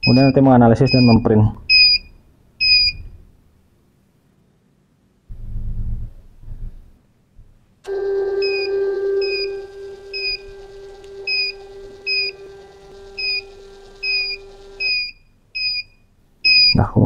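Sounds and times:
short high beeps: 0.0 - 3.0
printer motor whining: 7.9 - 15.2.

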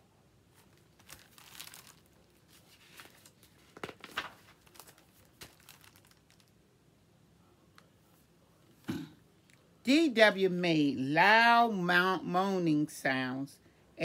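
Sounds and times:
paper pages rustling: 0.5 - 6.5.

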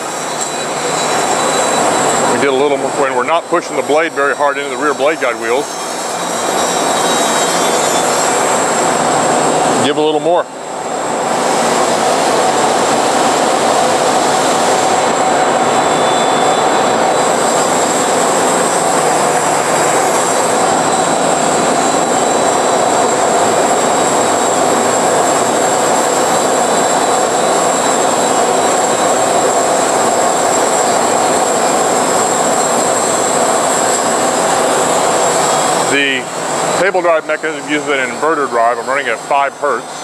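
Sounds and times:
high steady tone: 0.0 - 10.8.

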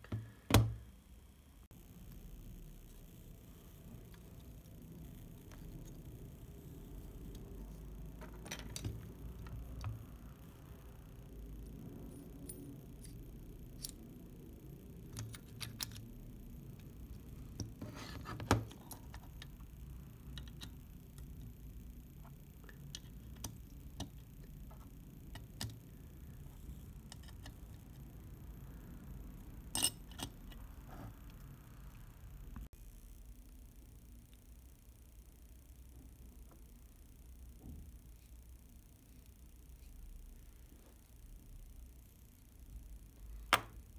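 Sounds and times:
small metal parts clicking: 29.7 - 30.6.

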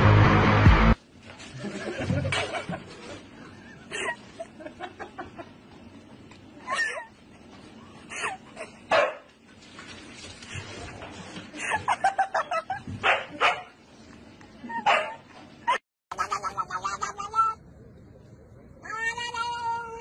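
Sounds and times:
dog yipping and barking: 14.8 - 15.2.

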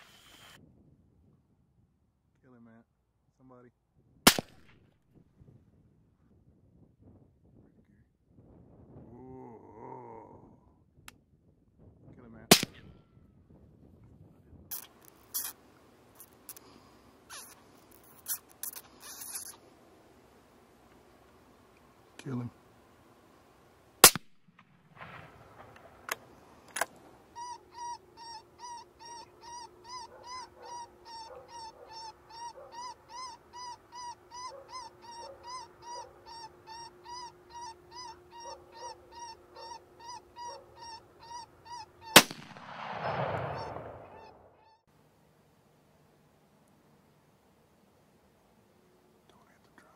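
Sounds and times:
gunshot: 4.3 - 4.7, 12.5 - 12.9, 24.0 - 26.1, 42.2 - 44.4
squalling distress call: 16.2 - 19.7, 26.0 - 42.3, 43.4 - 44.9.

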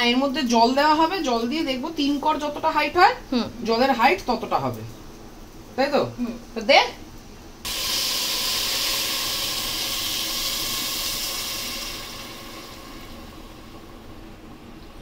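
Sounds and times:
water sizzling and steam hissing: 7.6 - 14.8.

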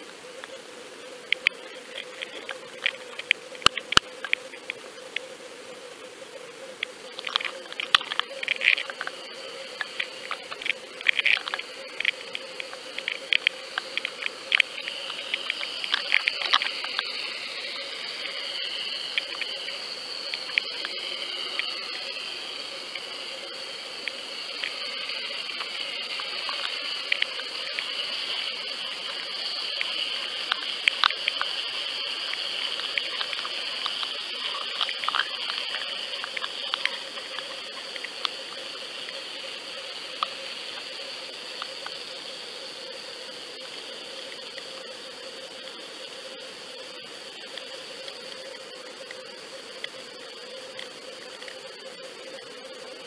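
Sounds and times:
constant high whine: 0.0 - 53.0
sharp clicks and ticks: 1.3 - 5.3, 6.8 - 39.4
underwater water rush: 7.2 - 42.0.

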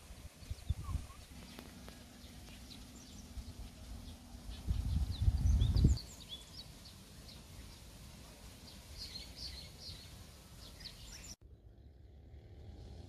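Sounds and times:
low rumbling on microphone: 0.0 - 7.9
small birds chirping: 0.0 - 12.6
low steady hum: 0.0 - 13.0.

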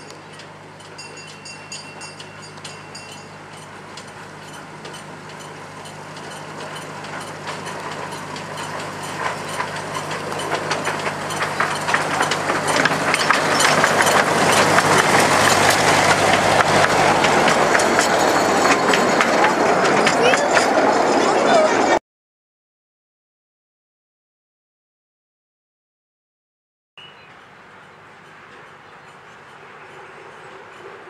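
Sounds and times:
train wheels clattering on track: 0.0 - 22.0, 28.1 - 31.0
wooden carriages rattling: 0.0 - 22.0.

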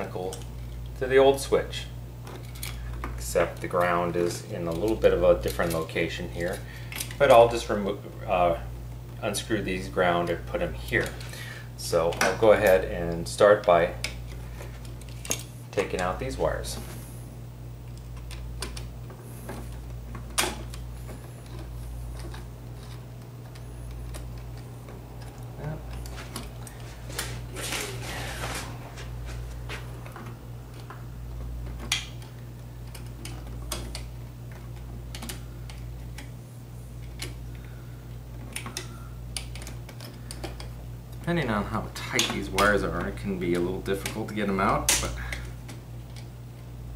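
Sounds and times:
steady low hum: 0.0 - 46.9
wires being worked loose: 10.2 - 46.8.

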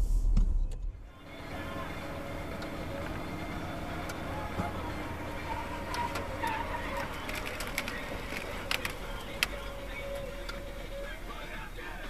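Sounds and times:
vehicle engine and road rumble: 0.0 - 12.0
sharp clicks or rattles: 6.9 - 9.6.

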